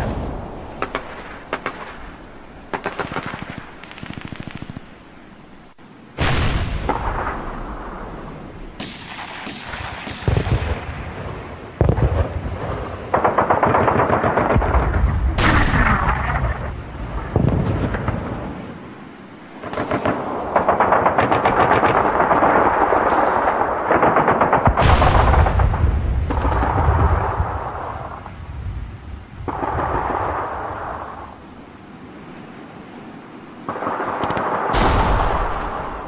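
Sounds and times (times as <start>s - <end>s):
machine-gun fire: 2.7s - 4.9s, 19.6s - 27.3s
heavy booms: 6.2s - 18.6s, 21.3s - 31.1s
single gunshots: 33.7s - 36.0s.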